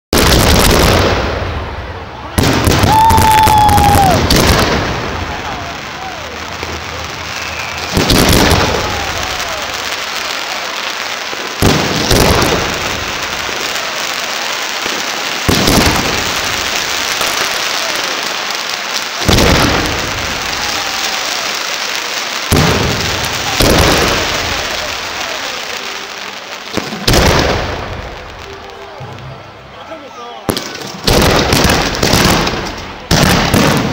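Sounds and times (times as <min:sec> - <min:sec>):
firework crackling hiss: 0:02.4 - 0:29.4.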